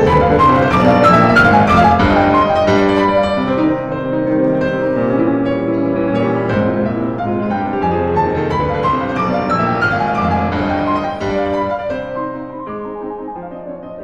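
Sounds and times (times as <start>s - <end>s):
piano melody: 0.0s - 14.0s.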